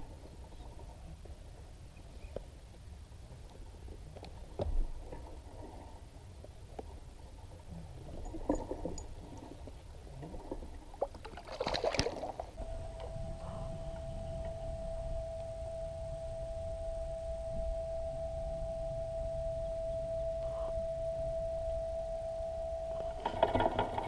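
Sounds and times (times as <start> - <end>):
water rumbling against hull: 3.3 - 24.0
short water splash: 11.2 - 12.5.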